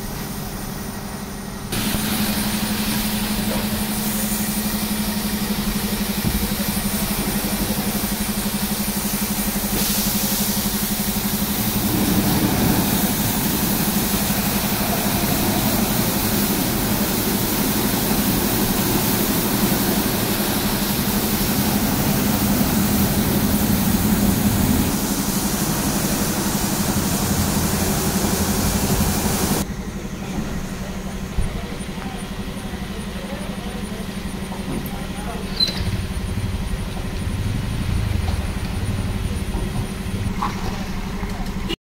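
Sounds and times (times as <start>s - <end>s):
hiss of brushes and water spray: 0.0s - 29.7s
steady motor hum: 0.0s - 41.8s.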